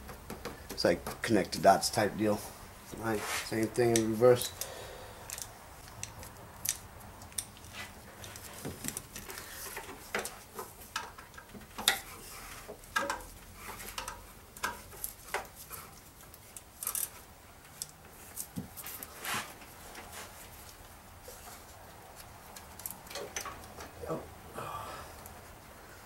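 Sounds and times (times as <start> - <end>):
hands clicking and rubbing on belt: 5.3 - 24.0.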